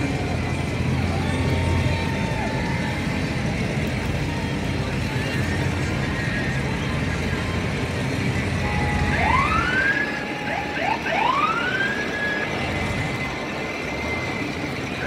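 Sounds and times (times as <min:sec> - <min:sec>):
siren whoops: 0:08.6 - 0:15.0.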